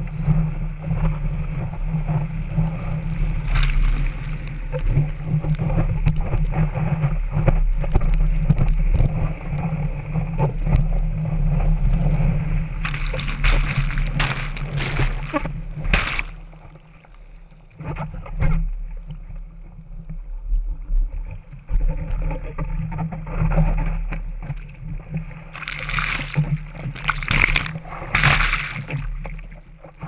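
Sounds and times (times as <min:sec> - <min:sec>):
water sloshing and splashing: 0:02.0 - 0:06.6, 0:12.8 - 0:17.6, 0:24.4 - 0:30.0.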